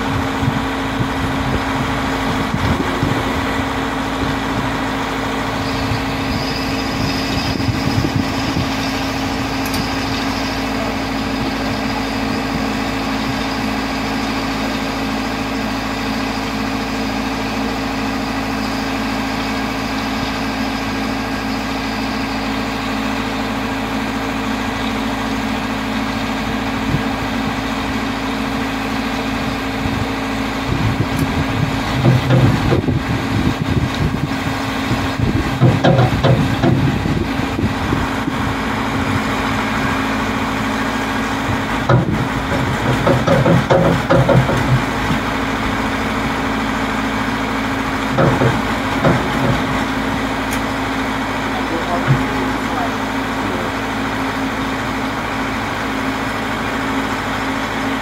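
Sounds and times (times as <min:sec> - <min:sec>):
truck engine running: 0:00.0 - 0:58.0.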